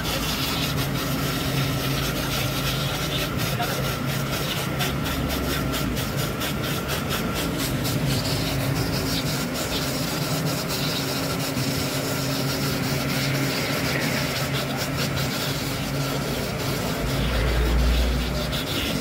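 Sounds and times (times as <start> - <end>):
rough scratchy rubbing: 0.0 - 19.0
small engine humming: 0.0 - 19.0.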